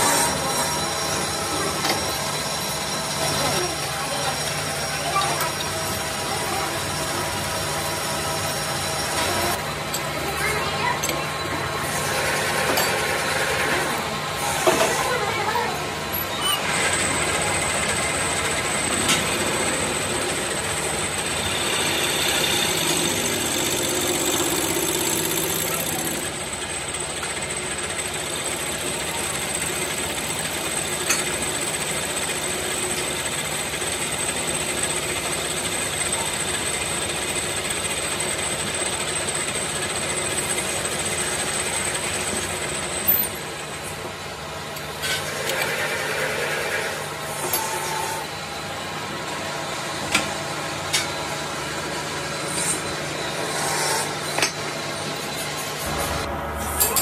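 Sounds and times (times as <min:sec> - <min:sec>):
metal lathe whining: 0:15.8 - 0:43.8, 0:44.8 - 0:57.0.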